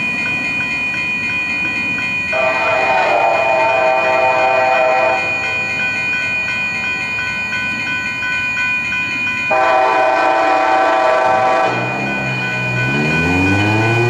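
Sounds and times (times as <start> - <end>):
locomotive horn blasts: 2.4 - 5.3, 9.5 - 13.0.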